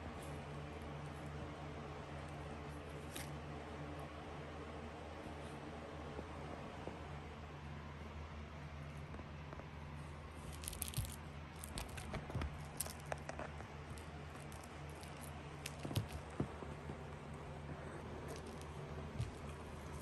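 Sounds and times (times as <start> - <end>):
low steady hum: 0.0 - 20.0
kitten scratching cardboard: 10.1 - 20.0.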